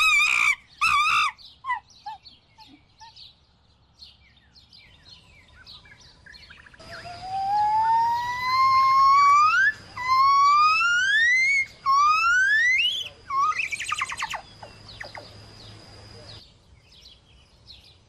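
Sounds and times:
rising whistled calls: 6.4 - 15.4.

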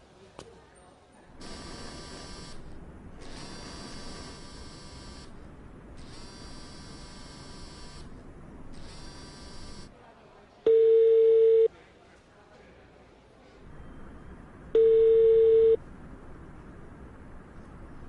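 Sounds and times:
mobile phone buzzing: 6.0 - 8.1, 8.8 - 9.9, 10.7 - 11.7, 14.8 - 15.8
telephone ringback tone: 10.7 - 11.7, 14.8 - 15.8.

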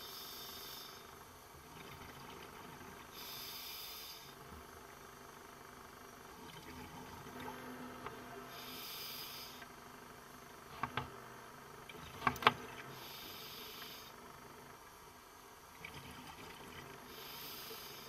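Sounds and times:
exhaled bubbles hissing from regulator: 1.6 - 4.4, 6.4 - 9.7, 12.8 - 14.2, 15.8 - 18.0.

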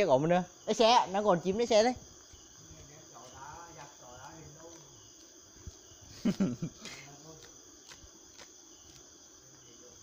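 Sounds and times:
crickets chirping: 0.0 - 10.0.

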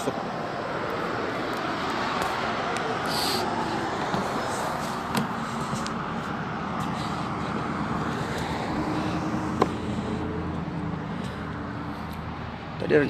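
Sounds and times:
car passing: 0.0 - 13.0.

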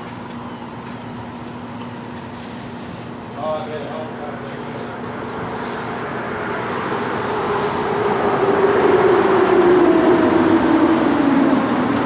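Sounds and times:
vehicle approaching hum: 3.0 - 12.0.

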